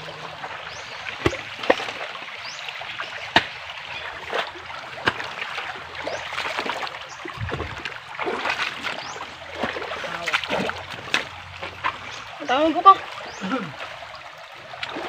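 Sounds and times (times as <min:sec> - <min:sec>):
stream running over rocks: 0:00.0 - 0:15.0
sharp splashes or knocks: 0:01.1 - 0:02.1, 0:03.2 - 0:12.1
dull thud: 0:07.4 - 0:08.0.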